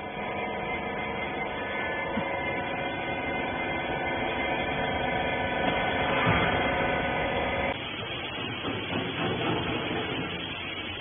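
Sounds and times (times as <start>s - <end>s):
baler motor humming: 0.0s - 8.7s.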